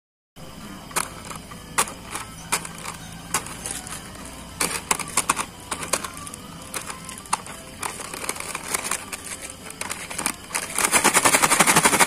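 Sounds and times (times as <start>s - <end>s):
plastic snack packets crinkling: 0.9s - 12.0s.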